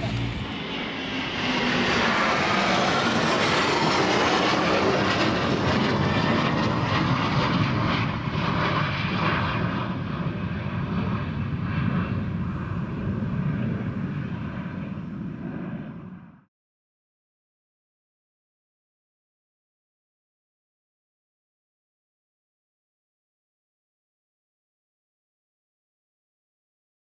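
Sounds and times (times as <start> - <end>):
jet engine roar flying overhead: 0.0 - 16.5.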